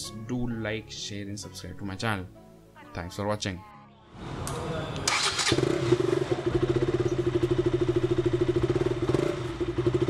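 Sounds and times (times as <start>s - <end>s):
motorcycle engine idling: 5.2s - 10.0s.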